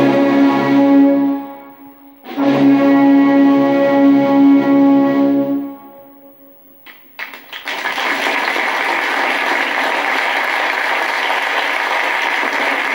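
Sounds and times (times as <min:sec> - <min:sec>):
audience applause: 0:07.2 - 0:12.9.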